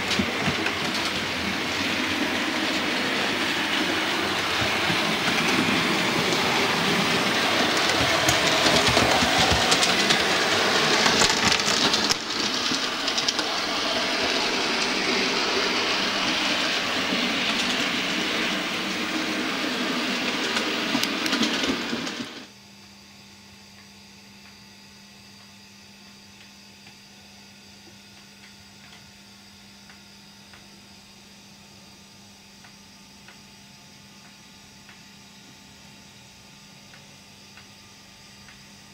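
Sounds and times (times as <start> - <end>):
model train wheels clattering: 0.0 - 22.5.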